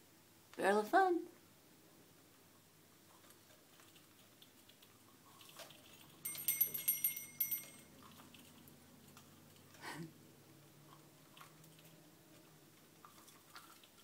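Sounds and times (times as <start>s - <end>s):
metal toy hardware jingling: 6.2s - 7.9s.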